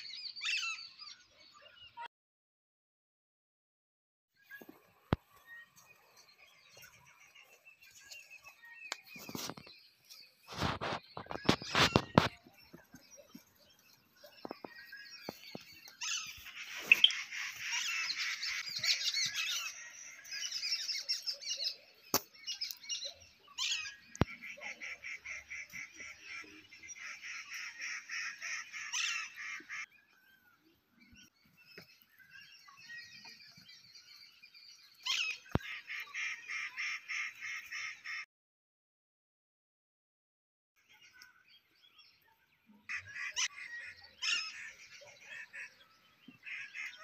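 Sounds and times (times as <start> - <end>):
wild birds calling: 10.4 - 38.2, 42.9 - 47.0.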